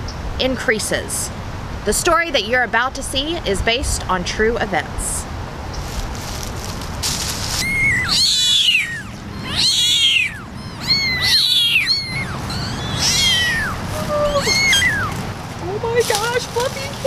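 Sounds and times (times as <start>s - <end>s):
kittens mewing: 7.2s - 17.0s.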